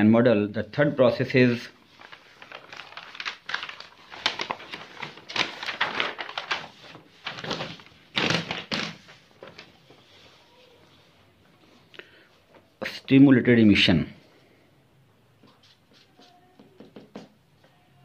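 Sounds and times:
paper rustling and crinkling: 1.4s - 11.1s.

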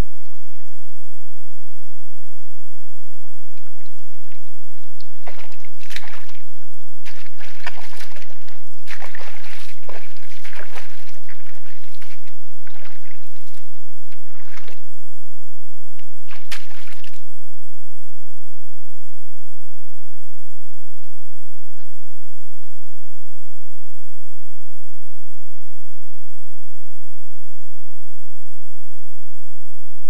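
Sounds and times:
hooves sloshing in mud and water: 3.6s - 14.9s, 16.3s - 17.2s.

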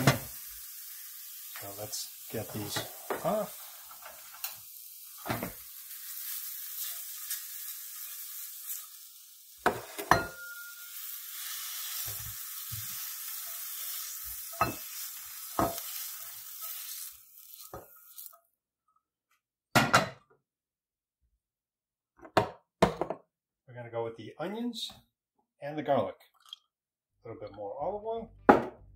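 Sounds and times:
mushrooms sizzling in a pan: 0.0s - 18.4s
spatula scraping a pan: 5.2s - 9.0s, 10.7s - 18.4s.

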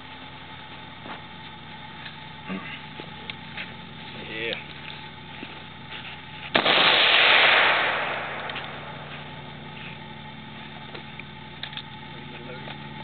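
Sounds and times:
rifle gunshot: 6.5s - 9.1s.

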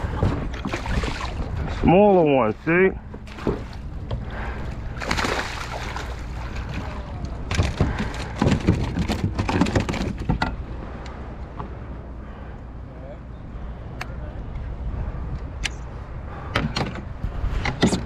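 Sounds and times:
water splashing and sloshing: 0.0s - 12.6s.

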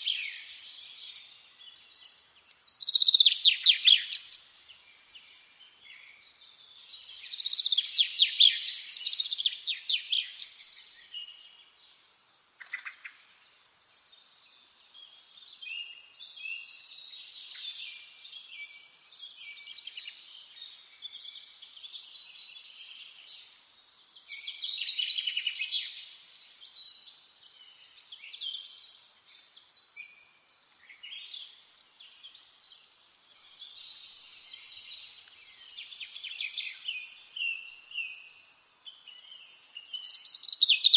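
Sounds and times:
songbirds singing: 0.0s - 40.9s.

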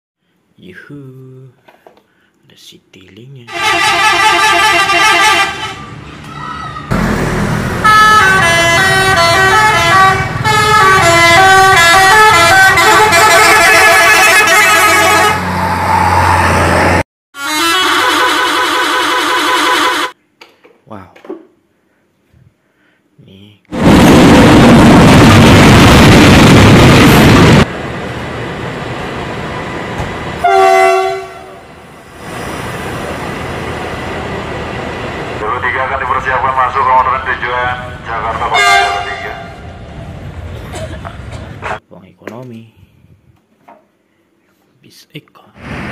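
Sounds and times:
musical bus horns: 3.5s - 6.0s, 7.0s - 15.8s, 17.4s - 20.2s, 30.4s - 31.6s, 38.5s - 39.6s
engine drone: 6.9s - 13.3s
passenger train rushing past: 6.9s - 17.0s, 23.7s - 41.8s.

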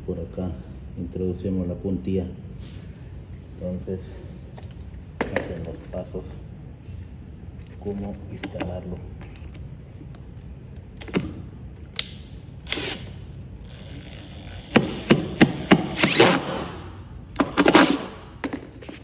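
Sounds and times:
impact driver hammering: 14.1s - 16.8s, 17.4s - 18.2s.

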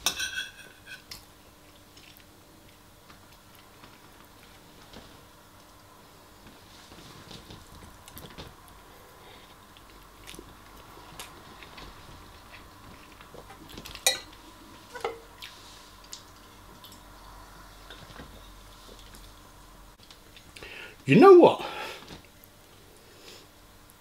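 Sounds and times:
chewing: 9.4s - 14.0s, 15.4s - 19.4s
metal spoon clinking on ceramic bowl: 14.0s - 14.3s.

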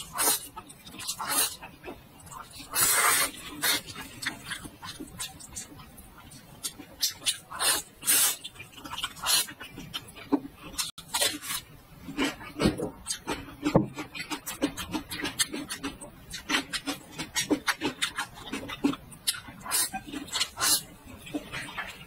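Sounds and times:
wet chewing: 0.0s - 22.0s
slurping noodles: 2.6s - 4.1s.

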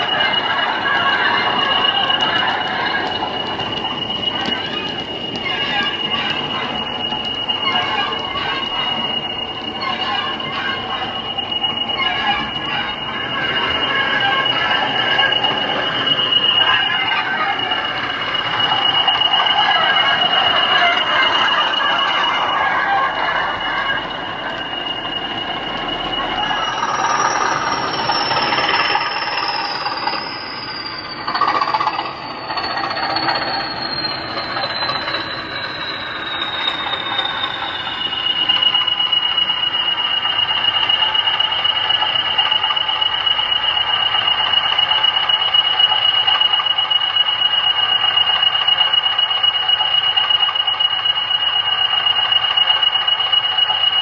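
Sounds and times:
diesel engine idling: 0.0s - 46.4s
turbocharger whistle: 0.0s - 54.0s.

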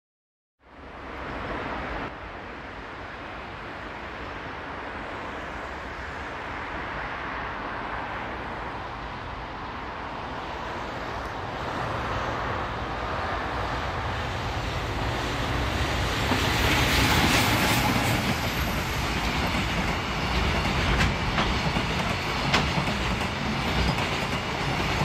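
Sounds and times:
low train rumble: 0.6s - 25.0s
train wheels rushing on rails: 10.0s - 25.0s.

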